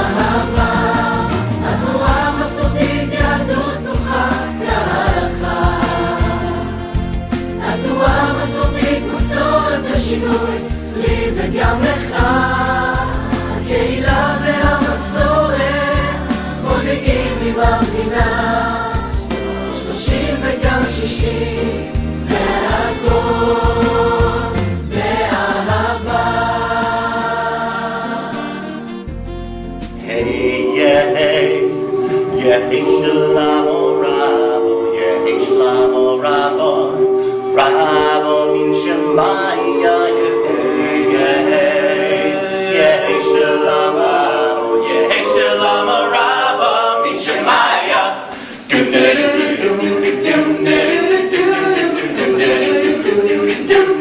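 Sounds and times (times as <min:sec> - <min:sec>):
choir singing long notes: 0:00.0 - 0:29.1, 0:30.0 - 0:54.0
instrumental backing: 0:00.0 - 0:35.4.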